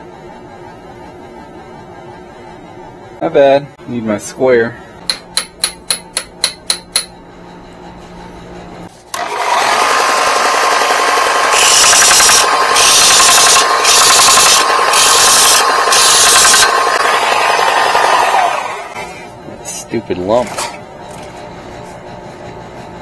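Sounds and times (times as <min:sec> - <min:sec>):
belt sander running: 0:09.1 - 0:19.2
metal grinding against sander belt: 0:09.1 - 0:19.2.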